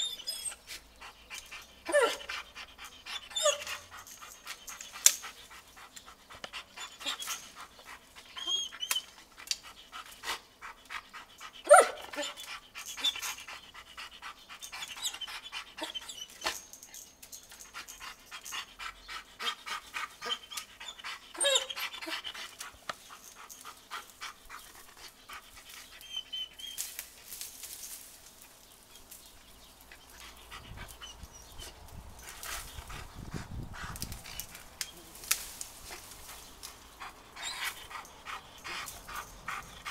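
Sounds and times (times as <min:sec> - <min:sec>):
dog whining: 0:00.0 - 0:00.7, 0:01.4 - 0:05.0, 0:08.3 - 0:09.2, 0:11.6 - 0:13.4, 0:14.7 - 0:16.7, 0:20.2 - 0:22.4
dog panting: 0:00.2 - 0:16.3, 0:17.6 - 0:26.4, 0:29.8 - 0:35.1, 0:36.0 - 0:39.9.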